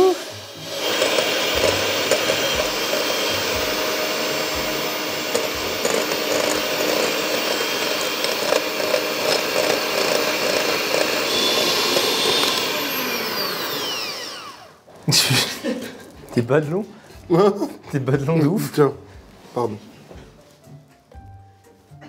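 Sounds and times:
electric hand mixer running: 0:00.0 - 0:14.9.

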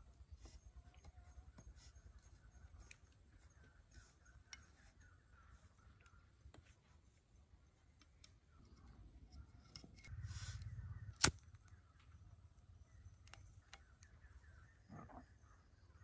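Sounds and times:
lighter click: 0:10.0 - 0:11.8.

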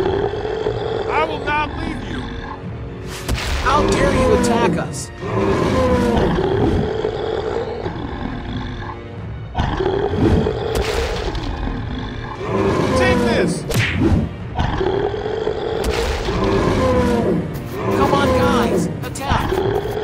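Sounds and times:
cartoon dinosaur roars: 0:00.0 - 0:02.5, 0:03.8 - 0:09.0, 0:11.8 - 0:13.6, 0:14.6 - 0:19.0
background music: 0:00.0 - 0:20.0.

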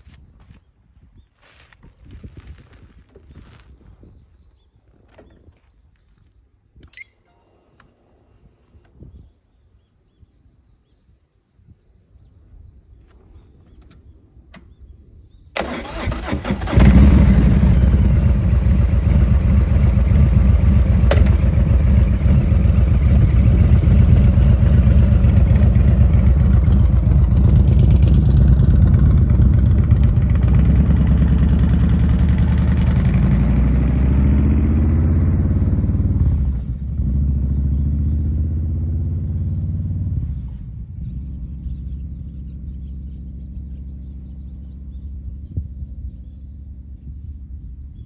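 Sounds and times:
motorcycle engine starting and running: 0:15.4 - 0:47.5.

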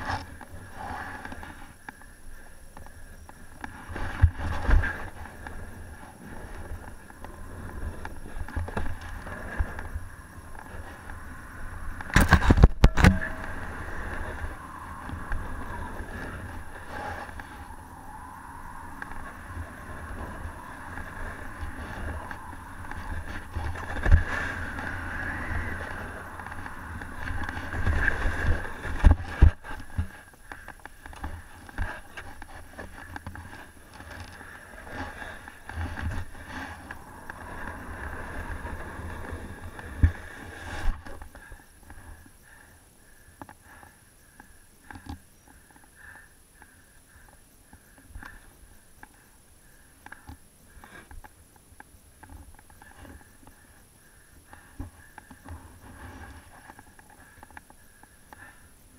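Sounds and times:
snowboard scraping on snow: 0:34.7 - 0:41.0.

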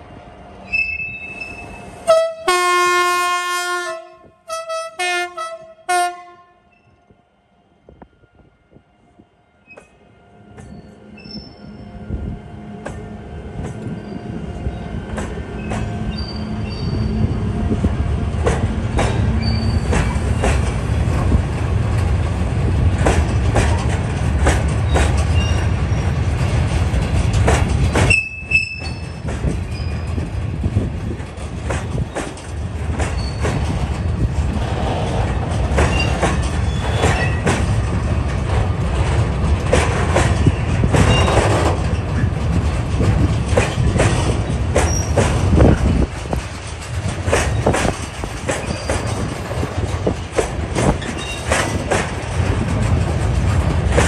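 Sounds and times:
freight train rumbling past: 0:00.0 - 0:54.0
high wheel squeals: 0:00.6 - 0:02.0, 0:10.6 - 0:12.0, 0:13.8 - 0:14.9, 0:15.5 - 0:17.6, 0:19.4 - 0:20.4, 0:24.9 - 0:26.2, 0:28.1 - 0:30.2, 0:33.2 - 0:33.7, 0:35.9 - 0:37.5, 0:44.8 - 0:45.2, 0:48.6 - 0:49.3
wheels clacking over rail joints: 0:12.8 - 0:54.0.

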